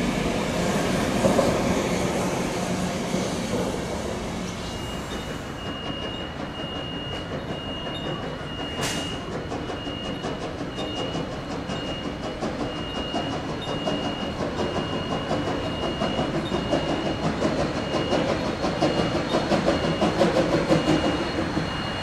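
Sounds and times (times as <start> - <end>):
steam locomotive exhaust chuffs: 0.0 - 22.0
train rumble: 0.0 - 22.0.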